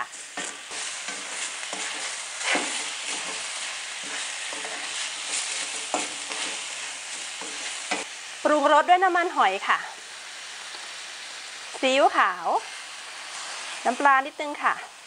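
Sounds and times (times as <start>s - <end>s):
spatula scraping a pan: 0.0s - 8.1s
fish sizzling in hot oil: 0.0s - 15.0s.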